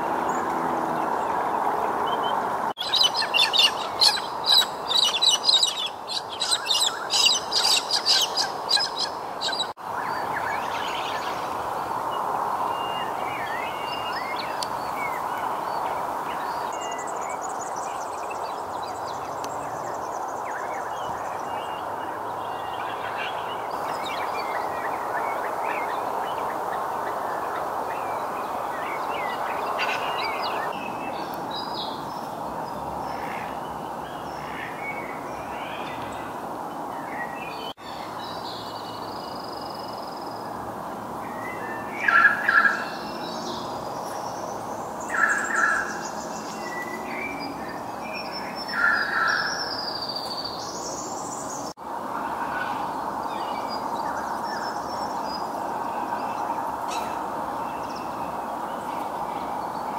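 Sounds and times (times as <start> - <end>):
birds chirping: 0.0 - 59.9
birds chattering: 2.8 - 9.8.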